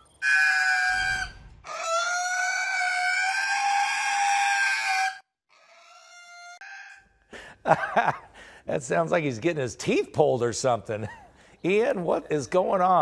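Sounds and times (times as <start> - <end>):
pig squealing: 0.2 - 7.1.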